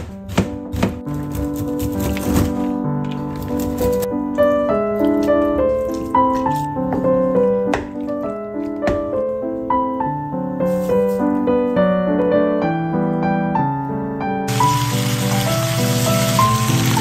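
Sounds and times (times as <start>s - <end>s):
slow piano music: 0.0s - 17.0s
food sizzling in a pan: 14.5s - 17.0s.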